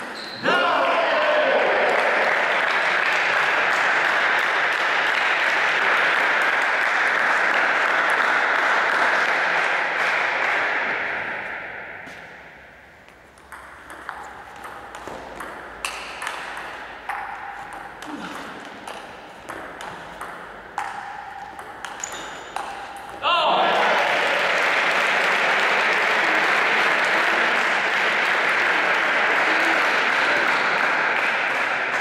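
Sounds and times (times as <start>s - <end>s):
spectators applauding: 1.2s - 10.6s, 23.6s - 32.0s
ball clicking off rackets and table: 13.3s - 23.2s.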